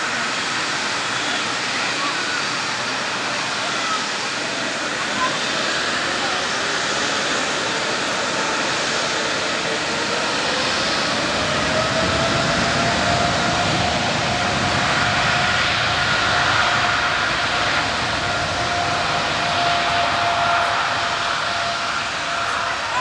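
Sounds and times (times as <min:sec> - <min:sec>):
jet engines spooling up: 0:00.0 - 0:23.0.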